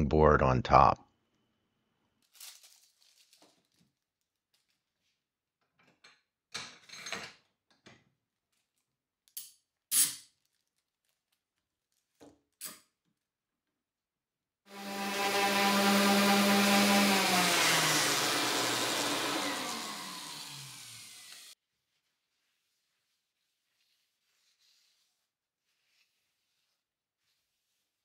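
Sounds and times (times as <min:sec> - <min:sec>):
wax paper rustling: 0:02.2 - 0:05.3, 0:21.6 - 0:28.0.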